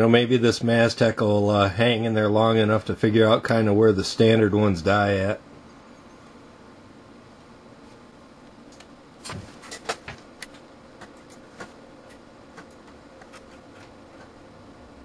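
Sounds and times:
sharp clicks and knocks: 8.7s - 14.4s.

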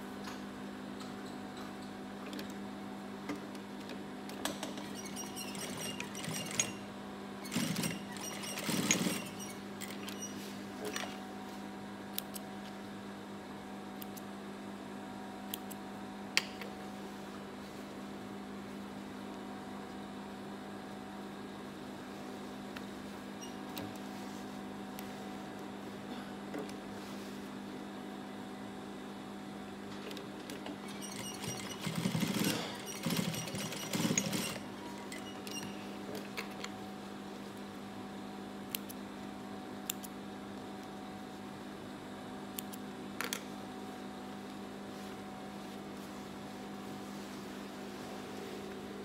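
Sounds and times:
sewing machine motor humming: 4.8s - 6.8s, 7.4s - 10.1s, 30.8s - 35.8s.

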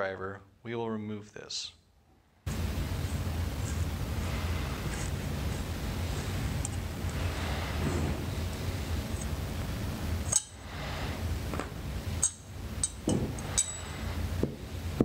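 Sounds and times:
low rumble: 2.5s - 15.0s
small metal clinks: 10.2s - 10.7s, 12.2s - 14.2s.

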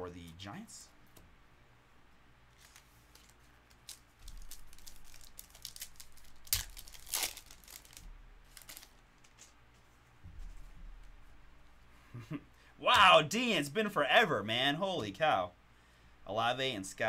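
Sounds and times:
cards sliding and ticking: 2.5s - 6.7s
wrapper crinkling and ripping: 2.6s - 9.5s.

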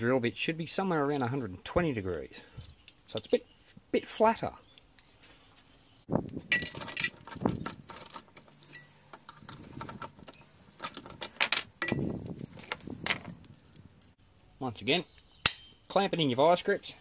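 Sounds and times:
drill bits clinking and rattling: 6.5s - 14.2s.

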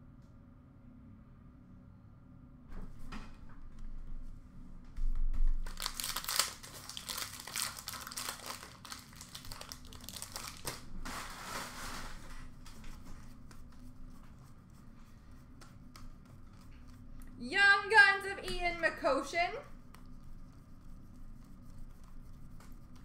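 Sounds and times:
card pack wrappers crinkling: 5.6s - 10.9s.

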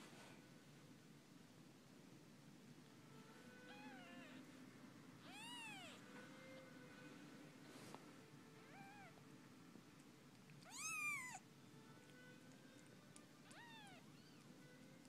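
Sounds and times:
kittens mewing: 3.6s - 4.4s, 10.6s - 11.4s, 13.4s - 14.5s.

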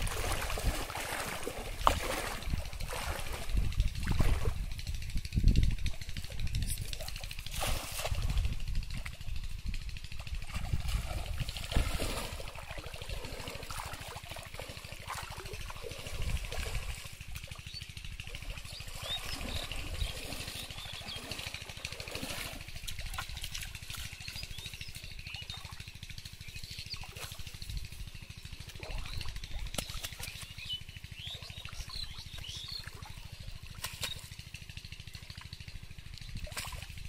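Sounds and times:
shallow water sloshing and trickling: 0.0s - 37.0s
steady low rumble: 0.0s - 37.0s
small birds chirping: 17.4s - 22.2s, 24.0s - 34.4s.

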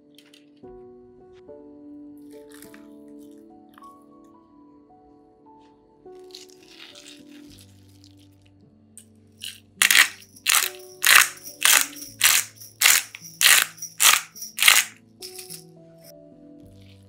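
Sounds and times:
pepper mill grinding: 6.3s - 7.7s, 9.4s - 15.6s.

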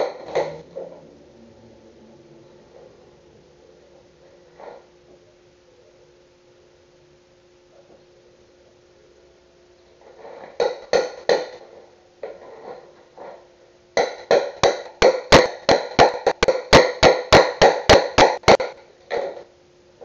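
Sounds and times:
hammer striking a plank: 10.6s - 11.6s, 14.0s - 19.4s.

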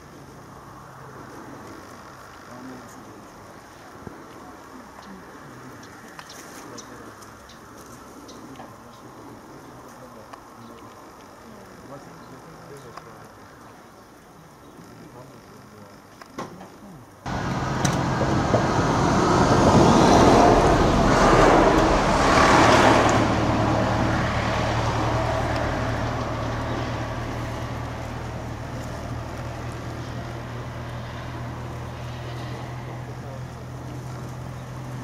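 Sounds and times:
low engine hum: 17.3s - 35.0s
vehicle passing by: 17.3s - 35.0s.

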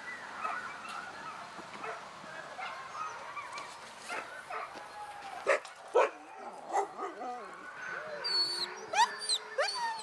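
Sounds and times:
dogs yelping and barking: 5.5s - 10.0s.

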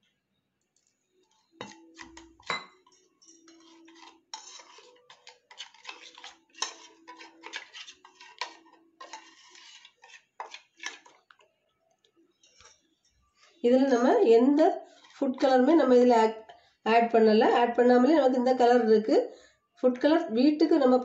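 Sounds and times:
spoon clinking in steel bowl: 1.6s - 9.3s.

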